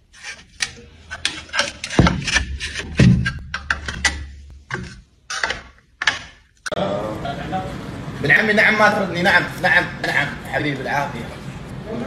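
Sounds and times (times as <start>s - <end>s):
metal trowels scraping on tiles: 0.0s - 6.8s.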